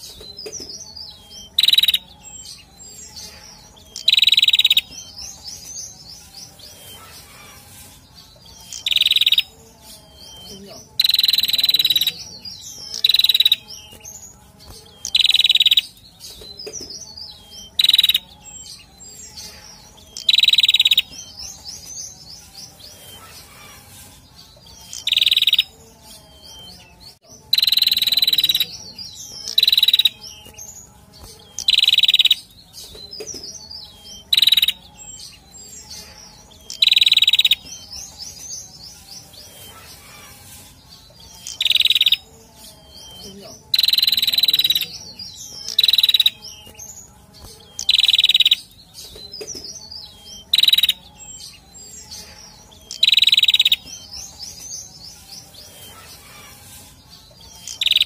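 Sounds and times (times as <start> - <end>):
high bird twittering: 0.0 - 58.0
bird harsh calls: 0.9 - 16.0, 17.0 - 25.8, 38.8 - 47.0, 55.6 - 58.0.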